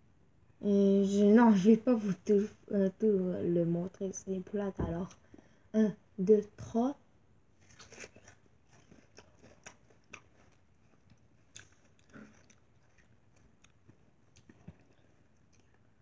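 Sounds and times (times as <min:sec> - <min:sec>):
faint wet chewing crunches: 0:07.6 - 0:15.9.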